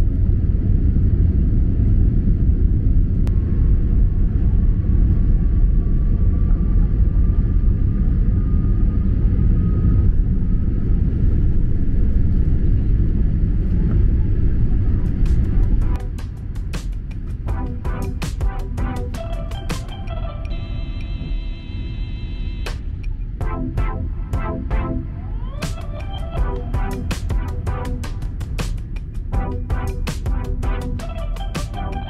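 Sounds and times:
jet engines rumbling: 0.4 - 32.0.

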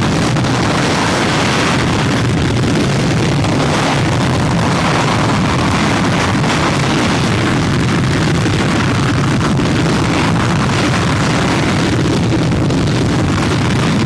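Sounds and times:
jet engine roaring: 0.0 - 14.0.

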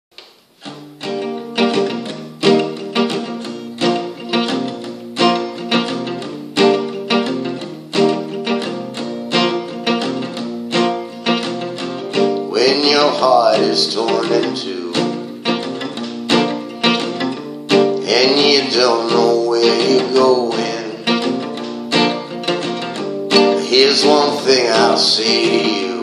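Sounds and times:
acoustic guitar strumming: 0.4 - 26.0
man singing: 12.4 - 15.3, 18.0 - 21.4, 23.5 - 26.0.

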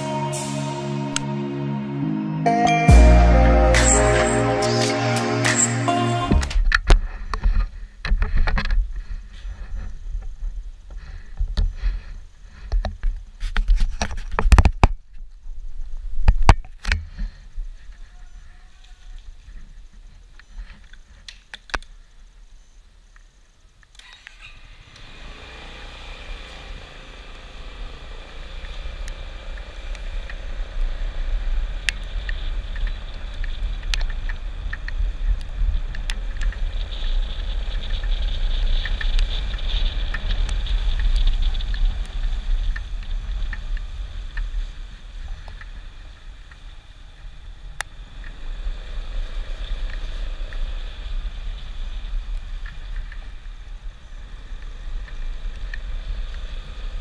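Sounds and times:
scooter engine and tyre noise: 24.0 - 57.0.

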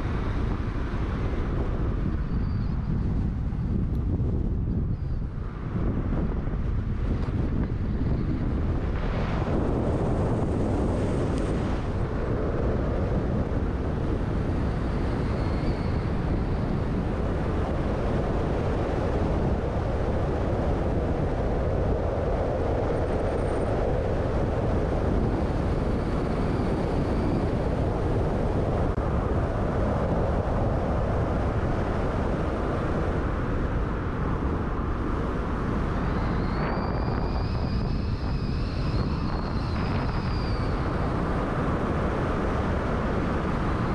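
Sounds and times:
car road and engine noise: 0.0 - 43.9
faint high whine: 34.6 - 43.9.

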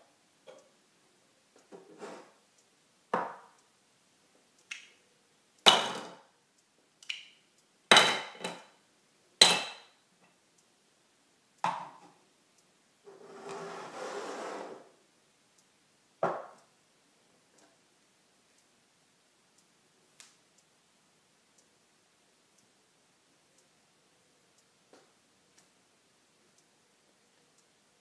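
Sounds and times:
rustling scrape: 1.9 - 2.4, 13.1 - 14.9.

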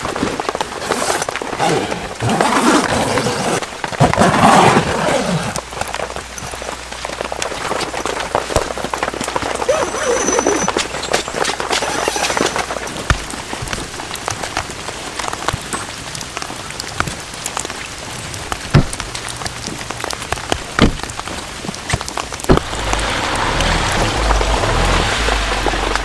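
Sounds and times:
steady rain falling: 0.0 - 26.0
sharp raindrop hits: 12.5 - 26.0
low rumble: 22.5 - 26.0.

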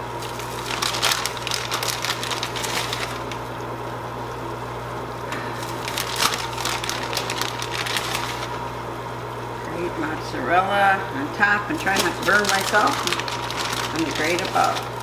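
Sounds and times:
steady low hum: 0.0 - 15.0
light crackling of sprinkled cheese: 11.8 - 15.0.

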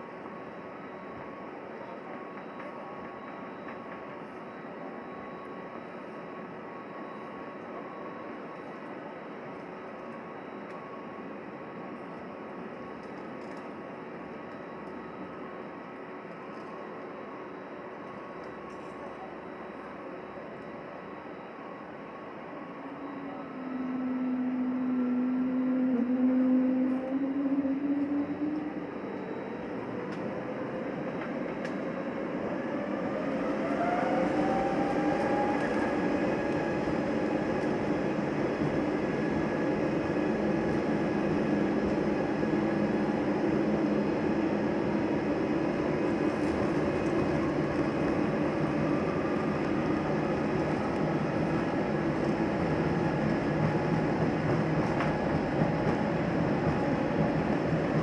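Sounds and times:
jet engines spooling up: 22.7 - 58.0.

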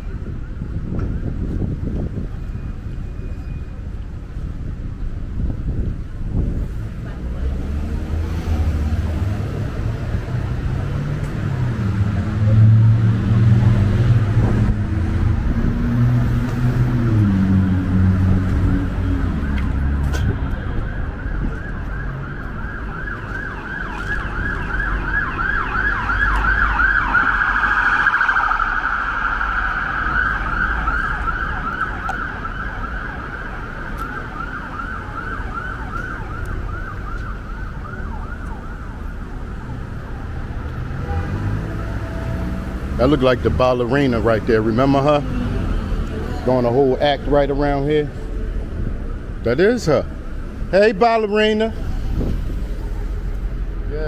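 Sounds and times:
street traffic rumble: 0.0 - 54.0
emergency siren yelping: 17.1 - 40.4.

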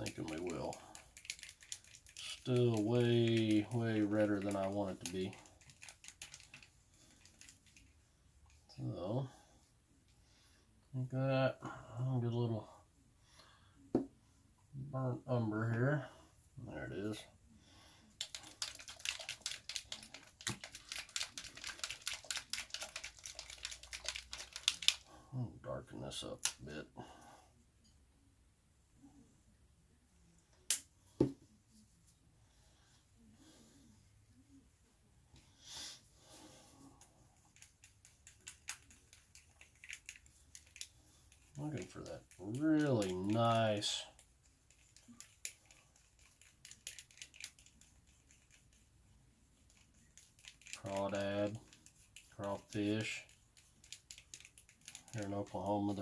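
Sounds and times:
paintbrush clicking in plastic cup: 0.0 - 7.9, 18.2 - 25.0, 37.6 - 40.9, 49.7 - 55.3.

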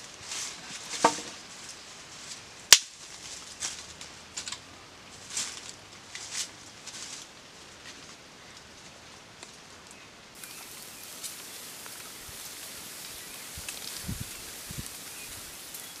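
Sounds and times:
sticks rustling and crackling: 0.0 - 16.0
sharp crack: 2.7 - 3.0.

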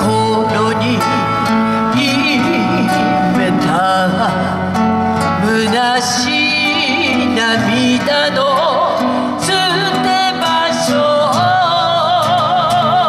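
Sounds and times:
acoustic guitars playing ballad: 0.0 - 13.0
man singing through speakers: 0.0 - 13.0.

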